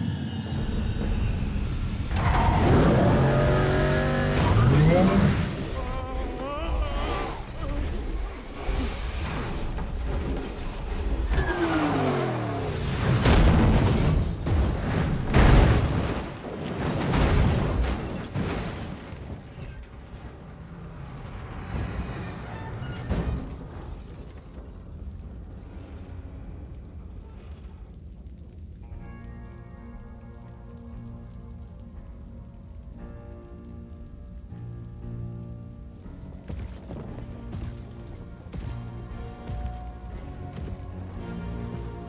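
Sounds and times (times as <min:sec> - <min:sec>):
low rumble: 0:00.0 - 0:11.2
film score: 0:00.0 - 0:42.0
rain: 0:00.0 - 0:42.0
heavy car crash impacts: 0:09.2 - 0:20.3.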